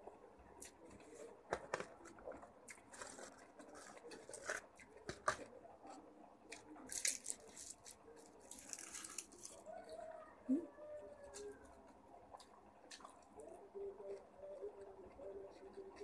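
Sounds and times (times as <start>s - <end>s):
wet chewing and lip smacks: 12.3s - 13.5s.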